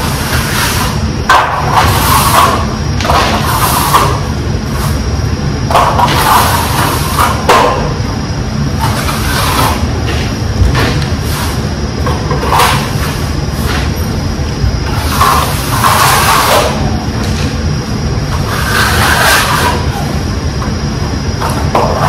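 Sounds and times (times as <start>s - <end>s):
trowel scraping cement on wall: 1.7s - 4.2s, 5.7s - 7.7s, 8.8s - 9.8s, 14.9s - 16.9s, 18.3s - 19.9s.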